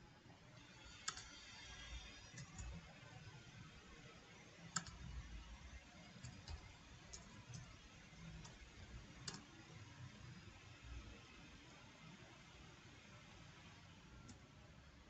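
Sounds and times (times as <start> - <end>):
computer keyboard key clicks: 1.0 - 1.3, 4.7 - 5.0, 9.2 - 9.5.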